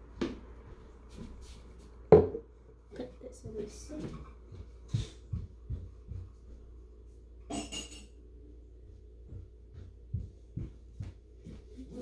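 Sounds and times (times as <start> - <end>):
room hum: 0.0 - 12.0
dishes clinking: 7.5 - 8.2.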